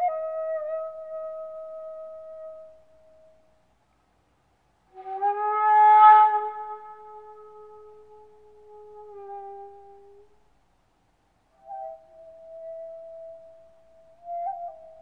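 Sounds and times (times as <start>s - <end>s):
wind instrument long notes: 4.9s - 10.5s, 11.5s - 15.0s.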